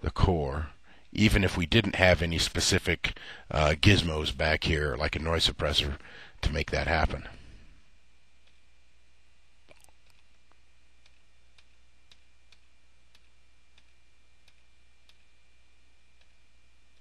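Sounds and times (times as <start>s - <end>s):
steady low hum: 0.0s - 17.0s
faint light clicks: 8.4s - 8.6s, 9.7s - 15.3s.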